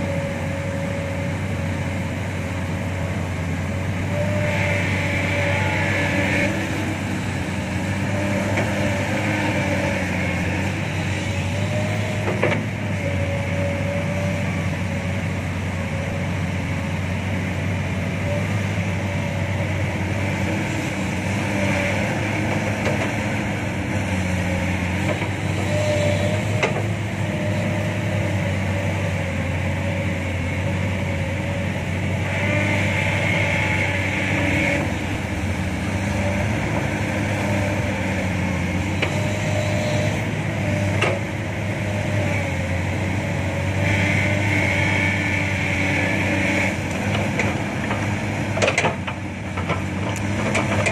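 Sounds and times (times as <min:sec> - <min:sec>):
diesel engine drone: 0:00.0 - 0:50.9.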